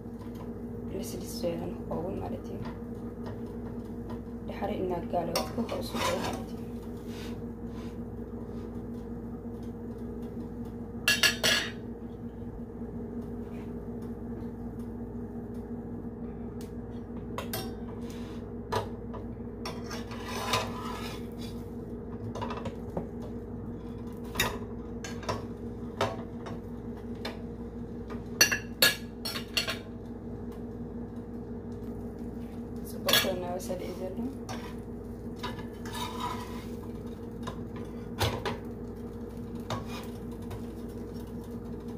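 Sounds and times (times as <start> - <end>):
steady low hum: 0.0 - 41.9
spatula scraping frying pan: 5.4 - 8.0, 19.7 - 21.6, 34.4 - 34.8, 35.4 - 36.9, 39.6 - 40.2.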